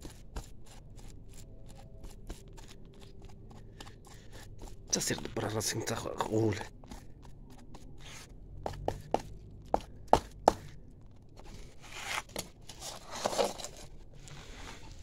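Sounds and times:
scraping rustle: 0:11.8 - 0:15.0.

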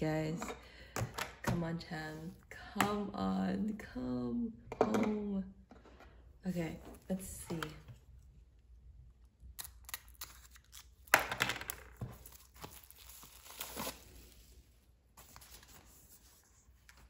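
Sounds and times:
plastic wrap crinkling: 0:09.8 - 0:14.4.

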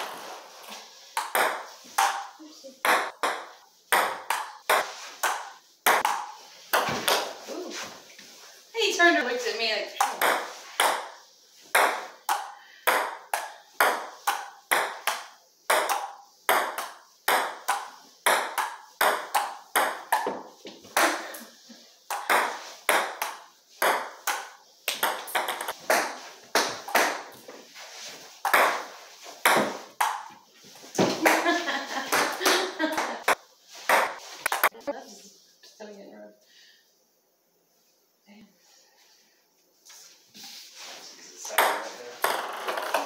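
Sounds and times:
ping pong ball hits: 0:01.2 - 0:07.3, 0:10.0 - 0:11.2, 0:11.8 - 0:21.2, 0:22.1 - 0:27.3, 0:28.4 - 0:30.3.

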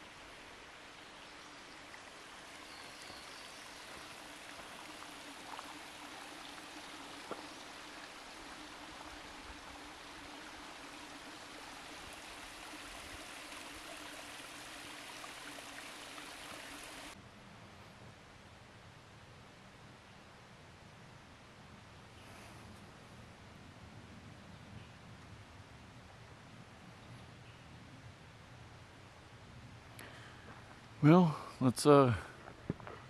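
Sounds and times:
creek trickling over rocks: 0:00.0 - 0:17.2.

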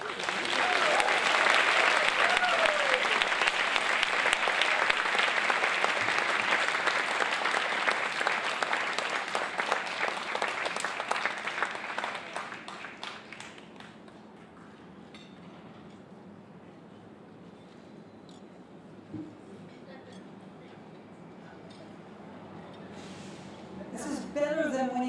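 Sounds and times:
audience applauding: 0:00.0 - 0:14.2.

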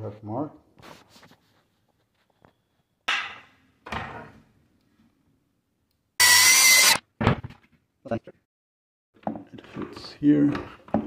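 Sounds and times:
circular saw cutting: 0:06.2 - 0:07.0.

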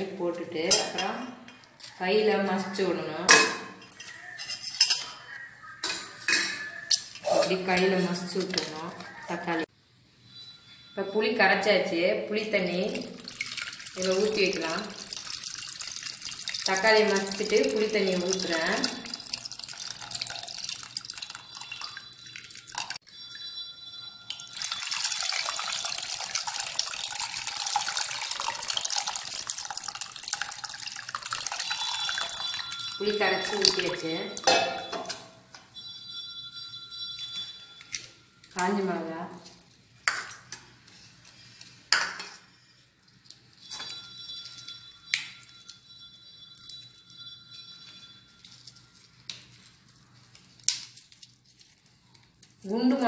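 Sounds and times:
thin ringing tone: 0:10.2 - 0:12.0, 0:16.6 - 0:39.1, 0:43.5 - 0:49.6
water pouring into metal pot: 0:12.7 - 0:23.0, 0:24.3 - 0:34.9.

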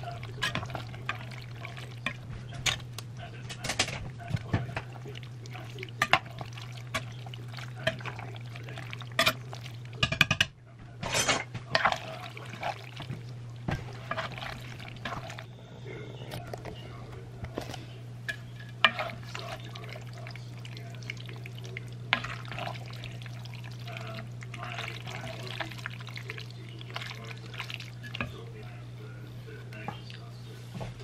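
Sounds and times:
spoon stirring thick sauce: 0:00.0 - 0:03.4, 0:04.1 - 0:10.2, 0:11.5 - 0:15.5, 0:16.2 - 0:30.6
steady low hum: 0:00.0 - 0:31.0
spoon scraping and knocking pan: 0:03.6 - 0:15.4, 0:17.6 - 0:19.8.

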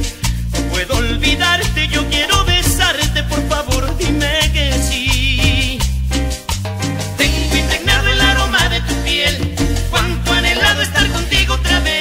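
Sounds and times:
instrumental cumbia music: 0:00.0 - 0:12.0.

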